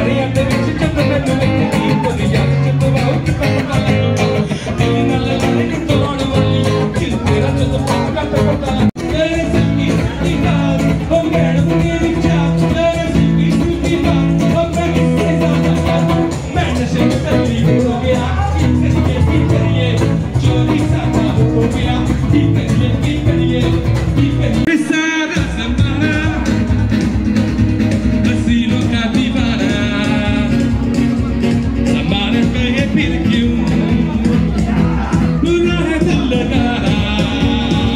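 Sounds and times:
party music with singing and guitar: 0:00.0 - 0:37.9.

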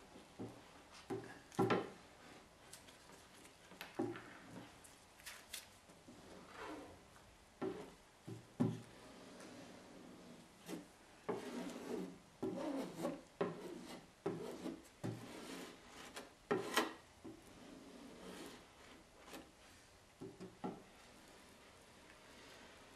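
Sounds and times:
putty knife scraping: 0:10.6 - 0:19.5.

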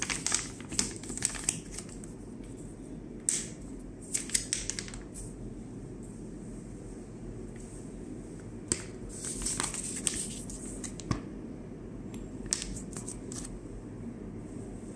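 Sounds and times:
plastic bag crinkling: 0:00.0 - 0:02.0.

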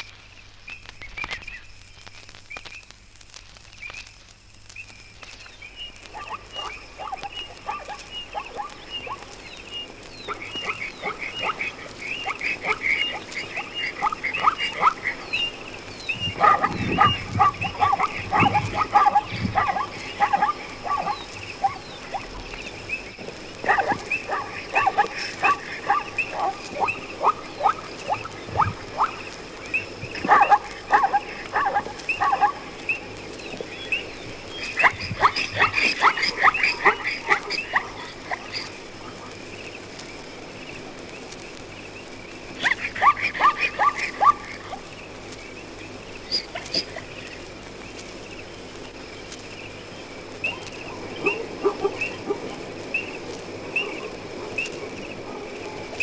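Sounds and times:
animals yelping barks: 0:06.0 - 0:39.5, 0:42.5 - 0:45.3, 0:45.9 - 0:47.5, 0:50.4 - 0:56.0.

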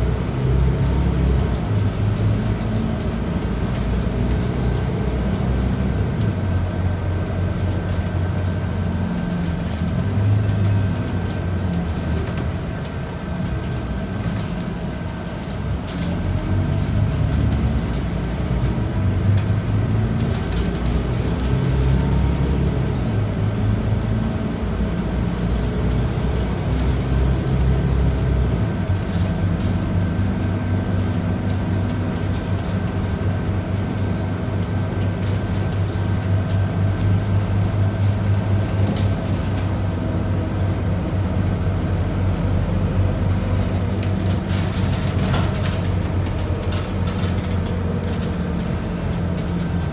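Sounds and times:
bus diesel engine drone: 0:00.0 - 0:49.9.

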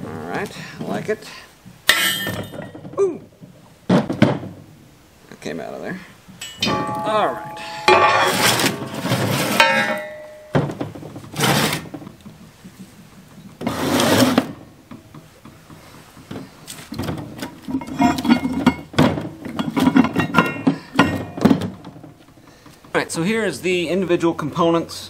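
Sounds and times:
heavy steel parts clanking: 0:01.9 - 0:02.9, 0:06.4 - 0:12.0, 0:16.9 - 0:22.2
metal scraping on table: 0:07.5 - 0:10.3.

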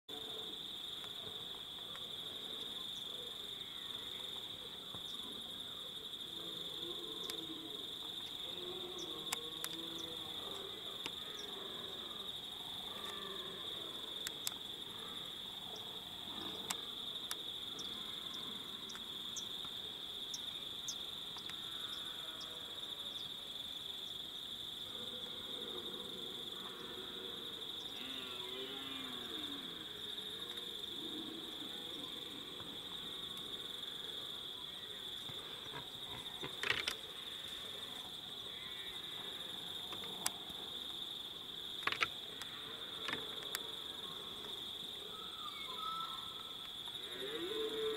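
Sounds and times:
high-pitched insect chorus: 0:00.1 - 0:47.9
faint sharp clicks: 0:09.2 - 0:09.9, 0:14.2 - 0:14.6, 0:41.8 - 0:43.7.

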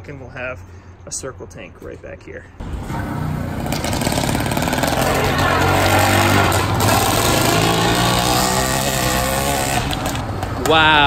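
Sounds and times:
motorized bike engine passing: 0:02.6 - 0:10.4.

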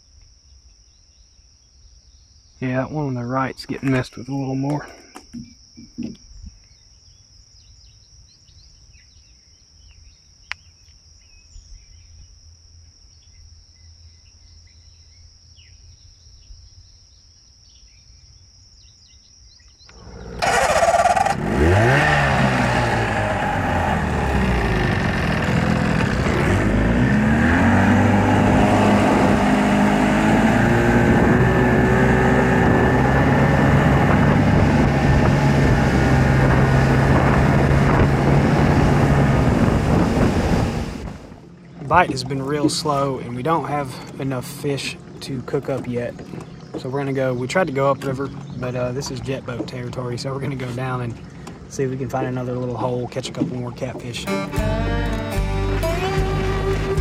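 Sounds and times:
insect chirps: 0:00.0 - 0:22.0, 0:41.4 - 0:52.4
outboard motor revving: 0:19.9 - 0:57.0.

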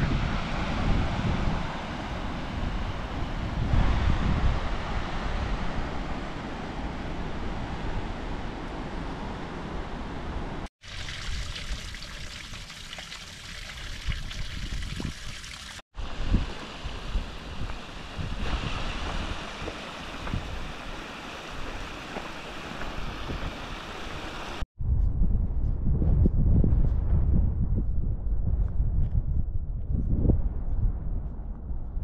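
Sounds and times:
stream running water: 0:10.8 - 0:24.6.

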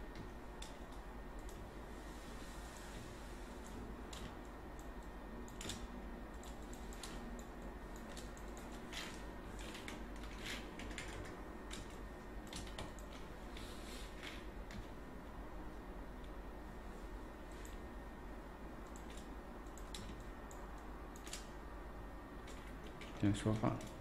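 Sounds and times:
steady low hum: 0:00.0 - 0:24.0
keyboard and mouse clicks: 0:18.8 - 0:21.5.

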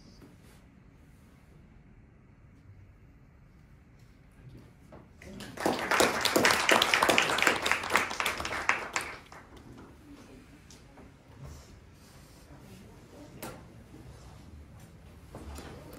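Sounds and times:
audience applauding: 0:05.2 - 0:09.8.

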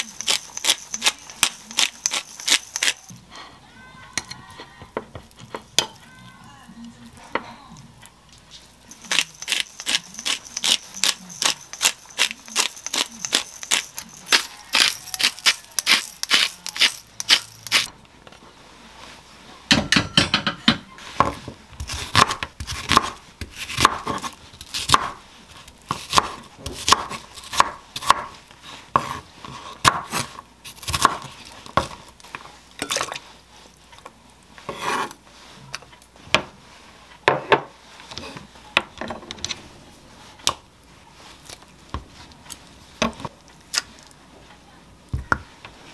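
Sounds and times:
knife chopping on wooden board: 0:21.2 - 0:25.2, 0:25.9 - 0:32.0.

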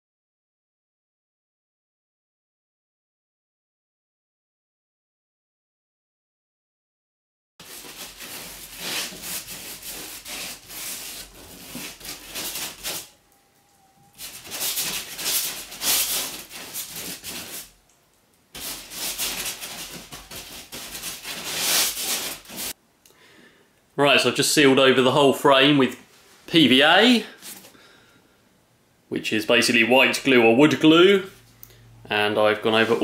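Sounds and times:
paintbrush scrubbing glue: 0:07.6 - 0:13.2, 0:14.1 - 0:17.7, 0:18.6 - 0:22.8.

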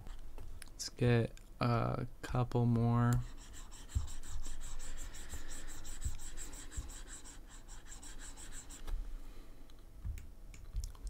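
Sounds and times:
stylus scratching on tablet: 0:03.1 - 0:09.0.

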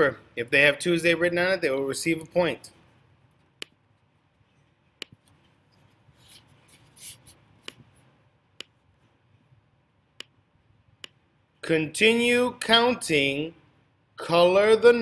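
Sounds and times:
soft rustling: 0:02.8 - 0:08.2.

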